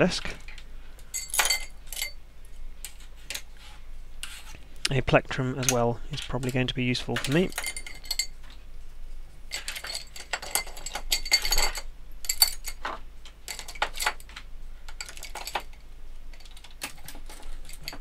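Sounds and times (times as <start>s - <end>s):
hand tools clattering on a desk: 9.5s - 18.0s.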